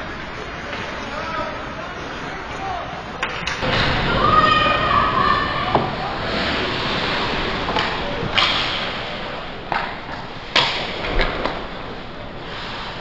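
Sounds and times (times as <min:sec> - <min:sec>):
hockey sticks clacking puck: 0:09.7 - 0:11.6.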